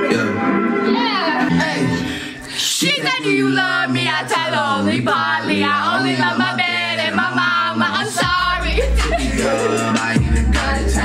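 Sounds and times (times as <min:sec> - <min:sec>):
pop song on speaker: 0:00.0 - 0:11.0
girls singing into microphone: 0:01.4 - 0:11.0.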